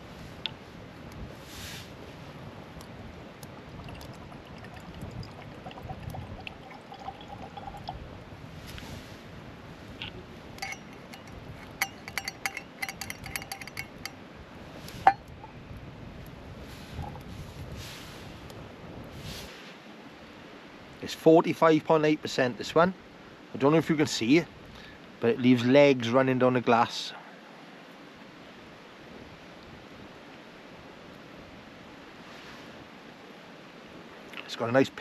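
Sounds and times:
whisky pouring into glass: 3.8 - 8.1
metal clinking against glass: 10.6 - 14.2, 15.0 - 15.3.

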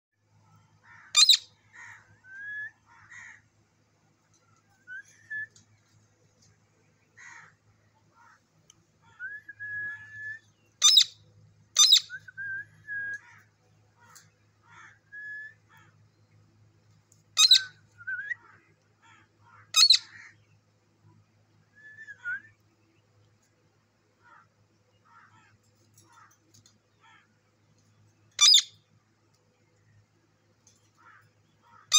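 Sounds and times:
parakeet screeching: 1.1 - 1.4, 10.8 - 11.1, 17.4 - 17.6, 19.8 - 20.1, 28.4 - 28.7
soft whistled bird notes: 4.6 - 5.8.

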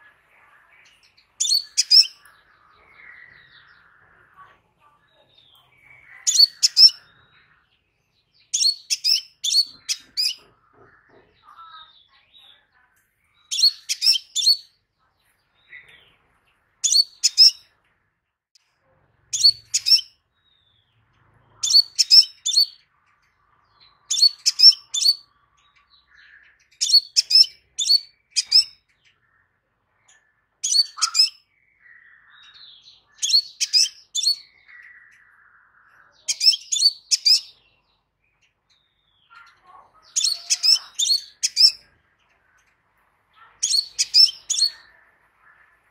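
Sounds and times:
soft bird twittering: 0.0 - 45.9
bird chirping sharply: 0.9 - 4.0, 5.0 - 7.4, 8.1 - 10.6, 13.3 - 14.8, 16.8 - 17.7, 19.3 - 29.5, 30.2 - 45.9.

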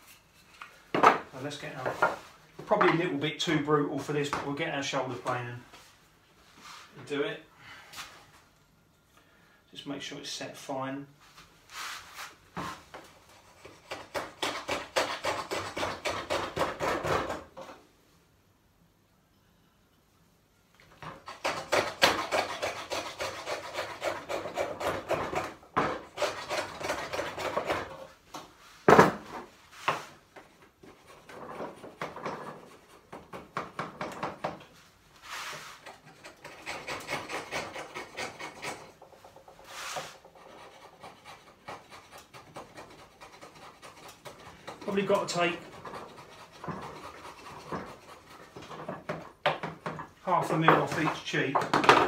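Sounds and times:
plane rasping across wood: 21.2 - 28.1, 39.6 - 49.1.

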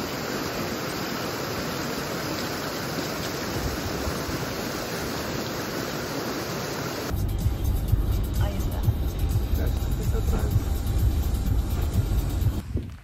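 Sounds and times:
rocky mountain stream rushing: 0.0 - 7.1.

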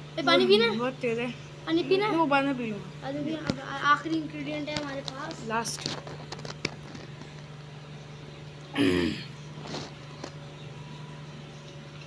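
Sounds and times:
steady low hum: 0.0 - 12.0
person clearing throat: 8.8 - 9.4.

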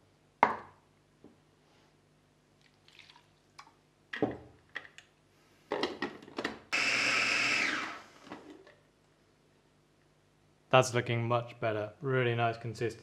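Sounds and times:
food processor motor whizzing: 6.7 - 8.6.

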